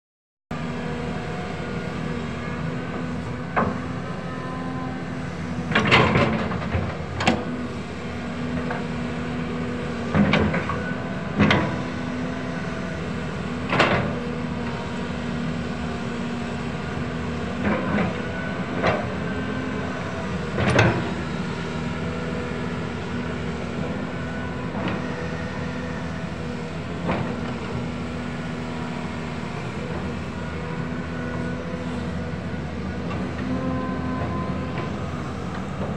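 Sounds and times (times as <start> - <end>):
diesel engine running under load: 0.5 - 35.9.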